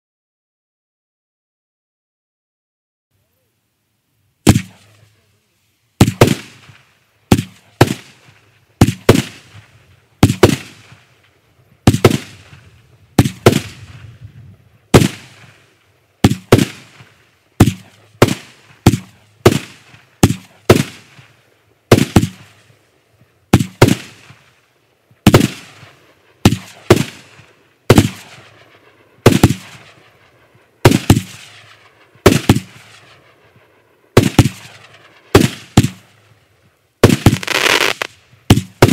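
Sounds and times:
firework bangs with ringing tail: 0:04.4 - 0:04.8, 0:06.0 - 0:11.1, 0:11.8 - 0:14.1, 0:14.9 - 0:15.6, 0:16.2 - 0:21.3, 0:21.9 - 0:22.7, 0:23.5 - 0:24.5, 0:25.2 - 0:36.1, 0:37.0 - 0:38.9.

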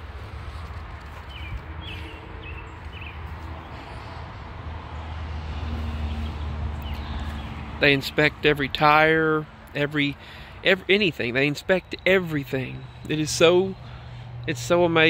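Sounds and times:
bird chirps: 0:06.8 - 0:07.6.

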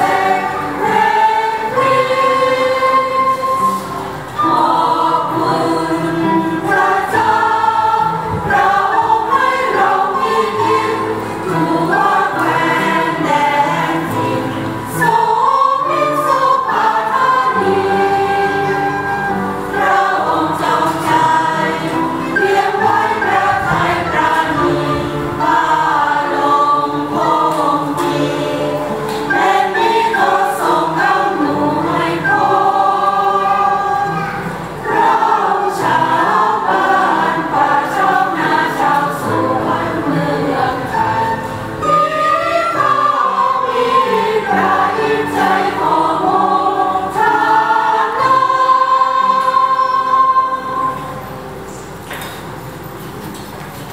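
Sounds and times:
choir singing a hymn: 0:00.0 - 0:52.8
end-blown flute: 0:02.9 - 0:06.0, 0:18.4 - 0:20.2.

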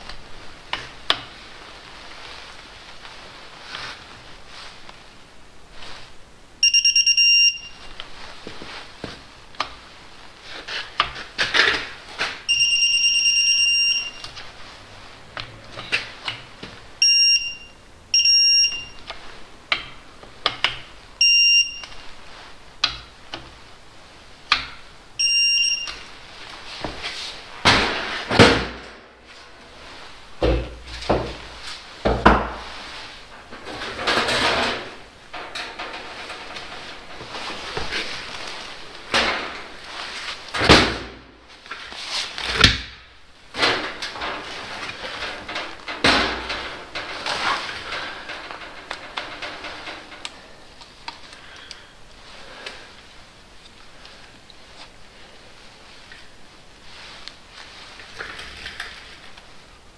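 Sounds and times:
torque wrench beeping: 0:06.6 - 0:07.8, 0:12.5 - 0:14.3, 0:17.0 - 0:19.0, 0:21.2 - 0:22.0, 0:25.2 - 0:26.0
metal clanks and knocks: 0:33.4 - 0:37.9, 0:43.6 - 0:50.4
tools rustling: 0:43.5 - 0:51.8.

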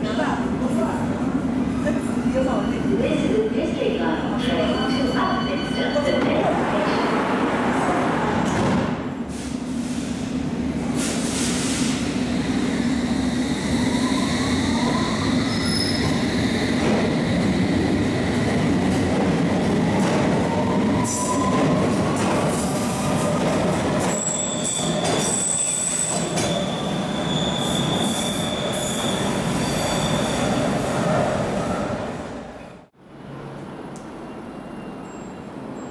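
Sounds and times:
train wheels rumbling on rail: 0:06.2 - 0:32.5
wheels squealing on rails: 0:13.5 - 0:17.3, 0:24.0 - 0:30.9, 0:34.2 - 0:35.9.

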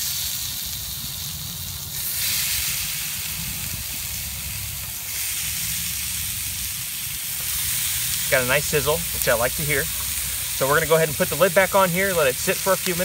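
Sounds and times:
meat sizzling on grill: 0:00.0 - 0:13.0
low rumble: 0:03.2 - 0:06.8.

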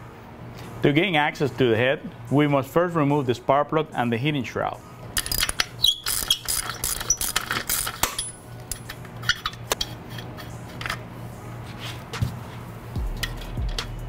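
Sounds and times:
ratchet clicking against metal: 0:05.2 - 0:11.0.

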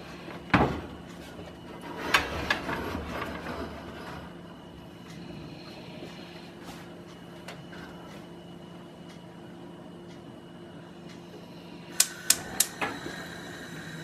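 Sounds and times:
faint steady hum: 0:00.0 - 0:14.0
spark igniter clicking: 0:12.0 - 0:12.8.

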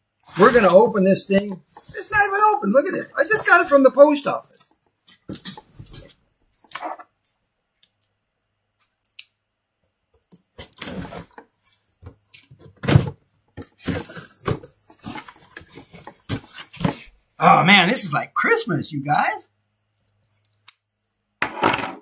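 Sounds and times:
cardboard scraping and rustling: 0:10.7 - 0:11.4, 0:12.8 - 0:17.1.

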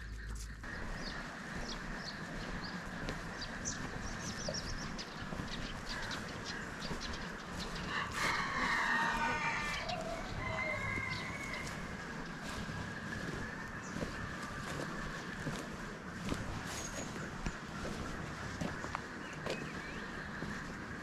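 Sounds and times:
rooster crowing: 0:07.7 - 0:14.8
faint chicken call: 0:07.8 - 0:14.9.

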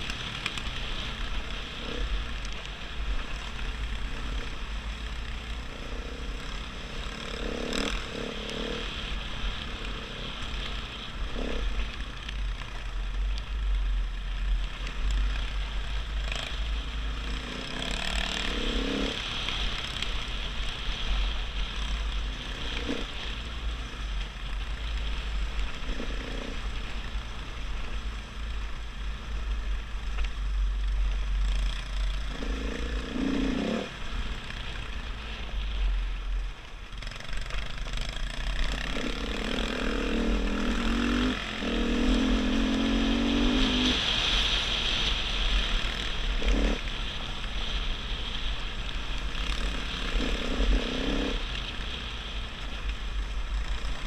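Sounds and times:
dirt bike engine running: 0:00.0 - 0:54.0.

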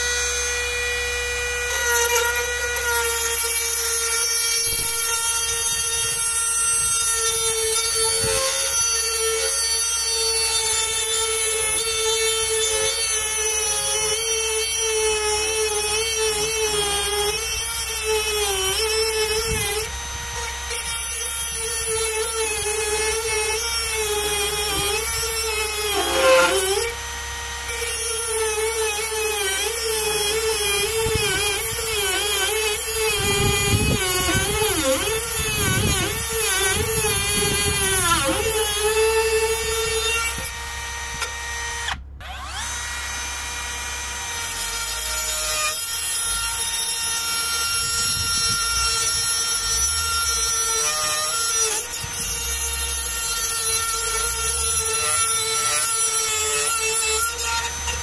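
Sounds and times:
rotary tool cutting metal: 0:00.0 - 0:58.0.

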